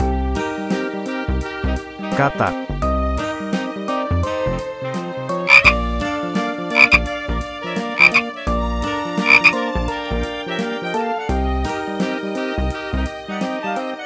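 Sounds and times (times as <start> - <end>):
background music: 0.0 - 14.0
frog croaking: 5.5 - 5.8, 6.7 - 7.1, 8.0 - 8.3, 9.2 - 9.6.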